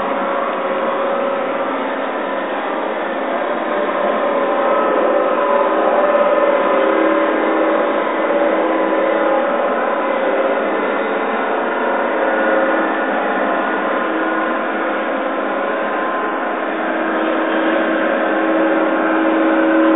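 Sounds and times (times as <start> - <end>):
electronic drone of held tones: 0.0 - 19.9.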